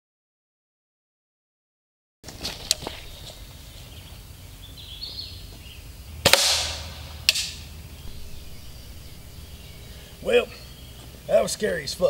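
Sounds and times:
air rifle shot cracking: 0:06.2 - 0:10.0.

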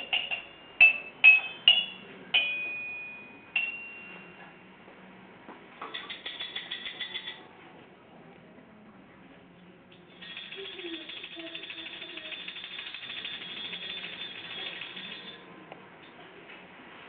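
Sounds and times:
ratchet-like clicking rattle: 0:06.0 - 0:07.4, 0:10.1 - 0:15.4.

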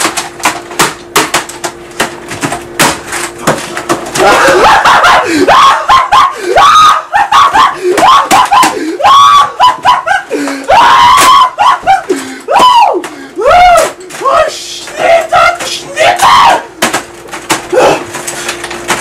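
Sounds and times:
man screaming in rage: 0:04.2 - 0:16.7.

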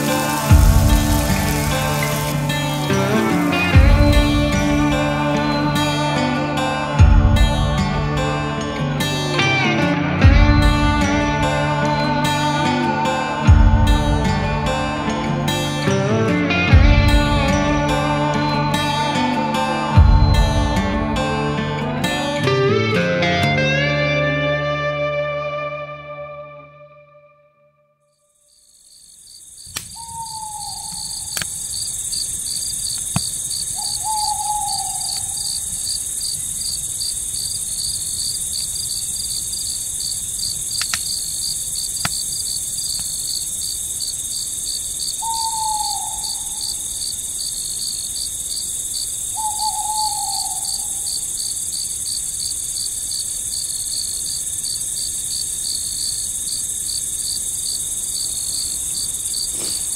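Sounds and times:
campfire popping: 0:00.0 - 0:05.1, 0:29.2 - 0:45.2
owl hooting: 0:00.0 - 0:06.8, 0:28.5 - 0:39.8, 0:45.0 - 0:48.1, 0:49.0 - 0:52.8
crickets chirping: 0:00.0 - 0:23.3, 0:28.1 - 0:59.9.

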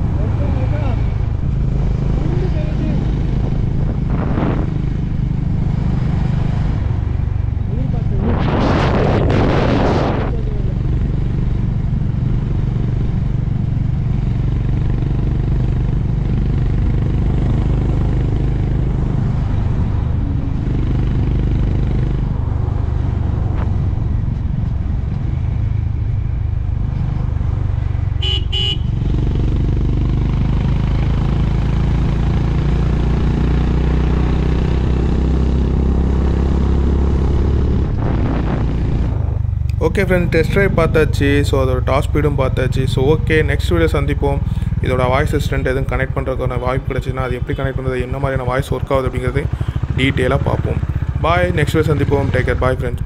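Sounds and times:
motorcycle engine running: 0:00.0 - 0:08.4, 0:09.9 - 0:53.0
horn beeping: 0:28.2 - 0:29.0.

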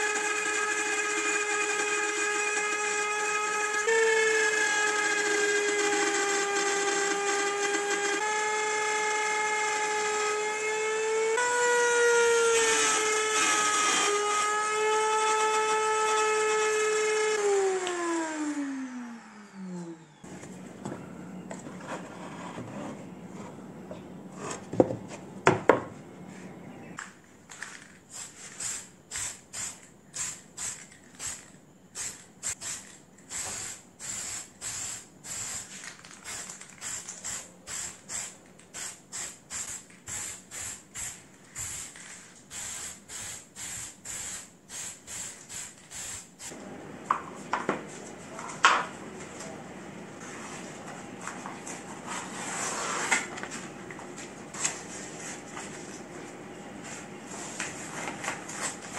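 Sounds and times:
spray paint can hissing: 0:28.1 - 0:46.6.

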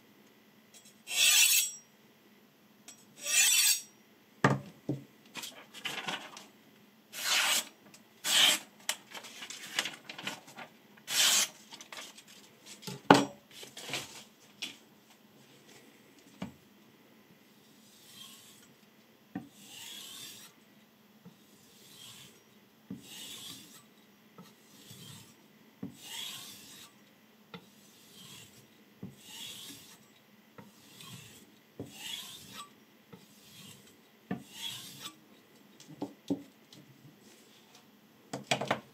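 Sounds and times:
knife rasping on sharpening stone: 0:01.1 - 0:01.8, 0:03.2 - 0:03.9, 0:07.2 - 0:07.6, 0:17.9 - 0:18.7, 0:19.5 - 0:20.5, 0:21.4 - 0:25.4, 0:26.0 - 0:27.0, 0:27.6 - 0:28.6, 0:29.2 - 0:35.2.

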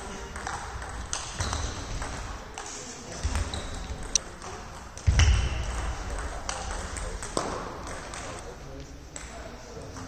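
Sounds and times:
table tennis ball bouncing: 0:00.2 - 0:08.4.

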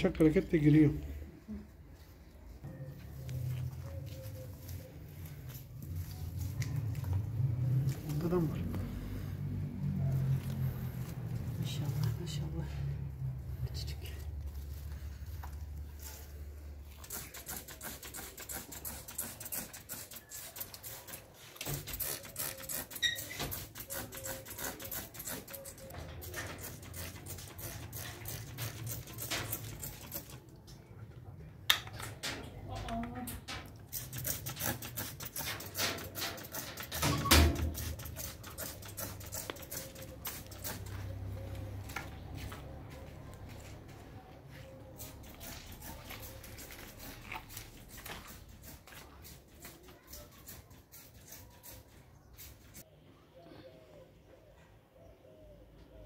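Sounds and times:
footsteps on wet concrete: 0:03.0 - 0:09.0, 0:40.4 - 0:49.5
spray bottle spritzing: 0:16.8 - 0:30.6, 0:33.8 - 0:41.4, 0:44.9 - 0:52.8
rustling strokes: 0:44.6 - 0:52.9.

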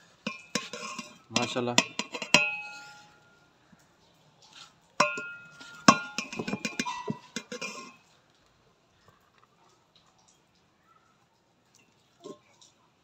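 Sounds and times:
metal spoon clinking on a pot: 0:00.0 - 0:03.4, 0:05.0 - 0:08.1.

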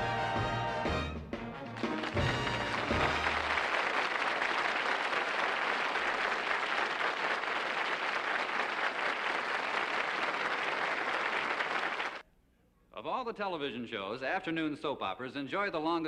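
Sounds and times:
audience applauding: 0:01.6 - 0:12.2.

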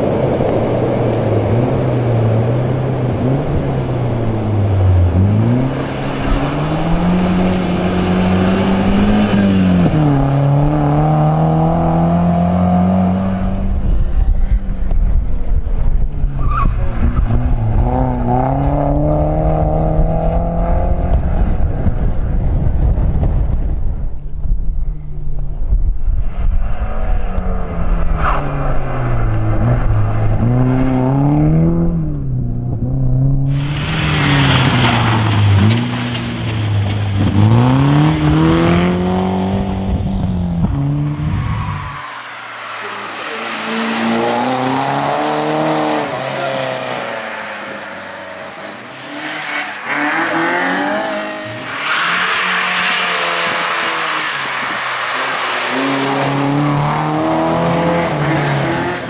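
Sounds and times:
rally car engines revving: 0:00.0 - 0:59.0
tyre squeal: 0:41.1 - 0:44.7.

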